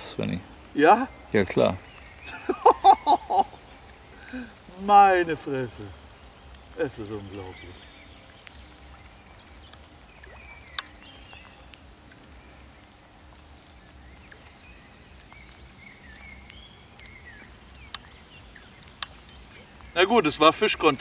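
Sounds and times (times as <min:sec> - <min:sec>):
small birds chirping: 0:00.0 - 0:21.0
sharp clicks: 0:10.7 - 0:11.8, 0:17.8 - 0:18.1, 0:18.8 - 0:19.4.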